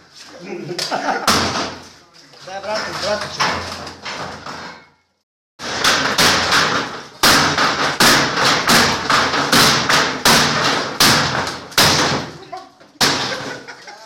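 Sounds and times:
axe chopping into wood: 0:05.6 - 0:12.4, 0:13.0 - 0:13.5.

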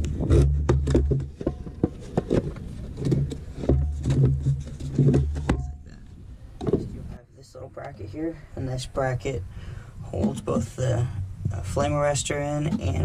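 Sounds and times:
plastic knocks and scrapes: 0:00.0 - 0:06.0, 0:06.6 - 0:07.0.

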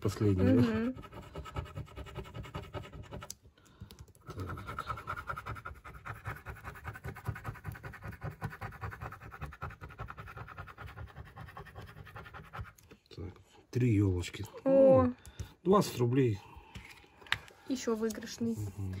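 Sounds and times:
scratch-off coating being rubbed: 0:00.2 - 0:03.4, 0:04.2 - 0:13.0.

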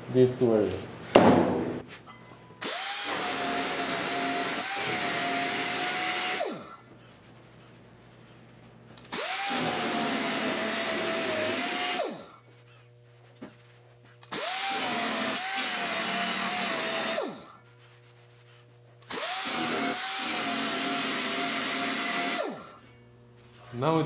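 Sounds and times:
air sander whining on steel: 0:02.6 - 0:06.8, 0:08.7 - 0:22.8.

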